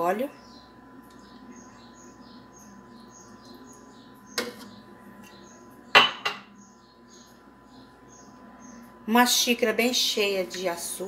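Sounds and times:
kitchenware knocking on countertop: 5.9 - 6.5.

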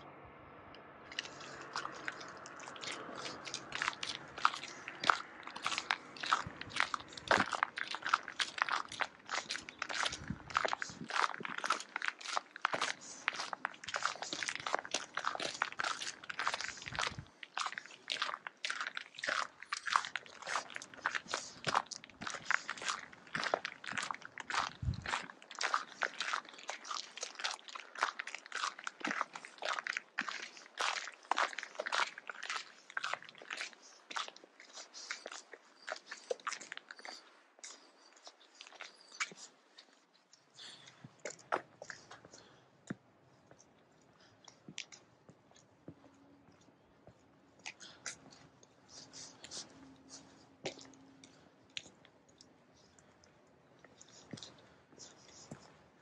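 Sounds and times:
footsteps crunching on snow: 1.1 - 37.8.

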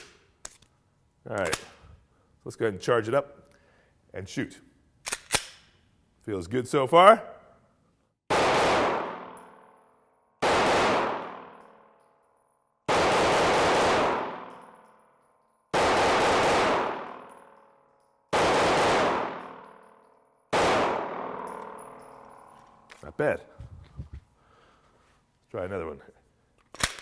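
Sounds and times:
pistol shots: 8.3 - 9.5, 10.4 - 11.7, 12.9 - 14.7, 15.7 - 17.5, 18.3 - 19.9, 20.5 - 22.4.

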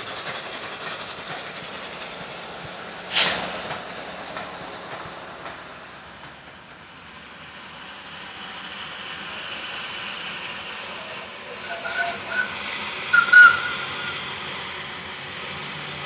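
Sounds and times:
steam locomotive running: 0.0 - 16.0.

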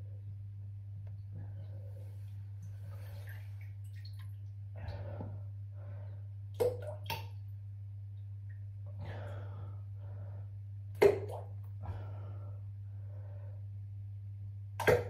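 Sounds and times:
steady low hum: 0.0 - 15.0
sharp plops in toilet water: 3.6 - 4.5, 6.5 - 7.5, 10.9 - 11.8, 14.7 - 15.0
stool splashing into toilet water: 11.0 - 11.5, 14.8 - 15.0.

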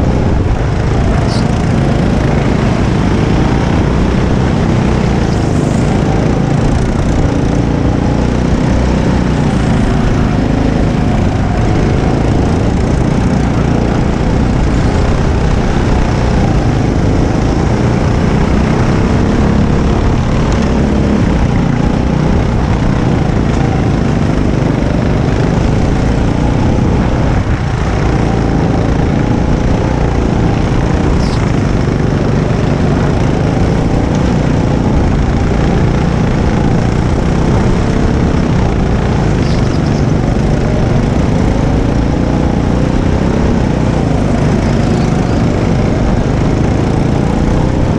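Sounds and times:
go-kart engine revving: 0.0 - 47.9.

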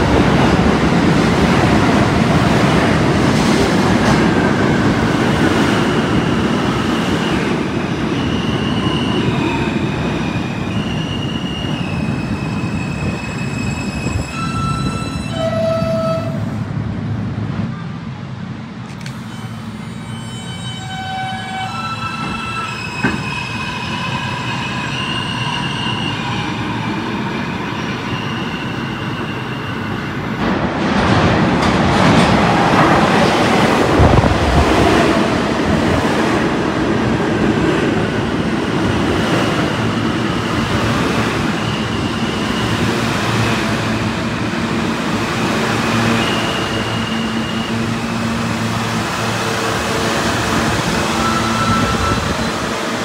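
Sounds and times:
subway train humming: 0.0 - 53.0
train cars rumbling past: 0.0 - 53.0
high wheel squeals: 8.1 - 16.3, 19.2 - 30.3, 41.4 - 43.0, 45.9 - 48.4, 50.8 - 52.8.

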